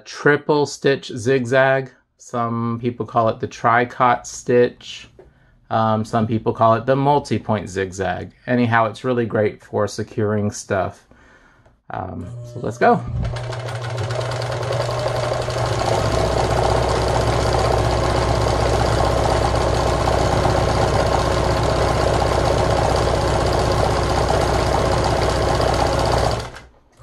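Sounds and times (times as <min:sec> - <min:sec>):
electric sewing machine sewing: 0:13.2 - 0:26.7.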